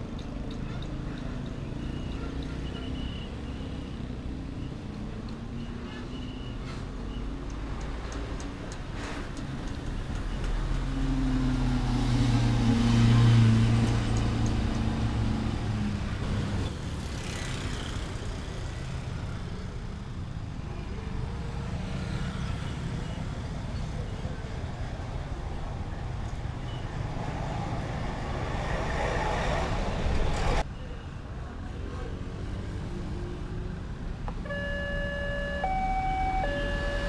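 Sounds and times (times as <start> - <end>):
road traffic noise: 0.0 - 37.0
motorcycles passing: 34.5 - 37.0.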